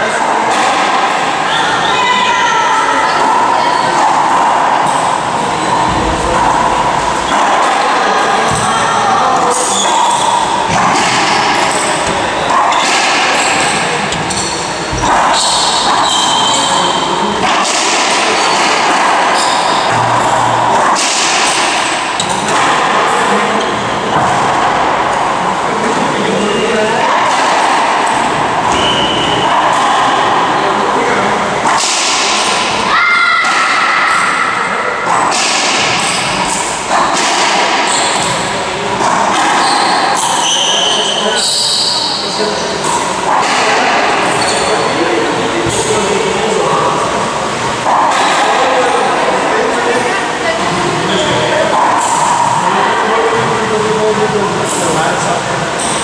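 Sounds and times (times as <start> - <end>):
echoing din: 0.0 - 56.0
racquet striking ball: 3.2 - 26.0, 26.6 - 34.4, 35.0 - 42.2
sneaker squeak on wooden floor: 12.0 - 16.9, 39.6 - 42.2.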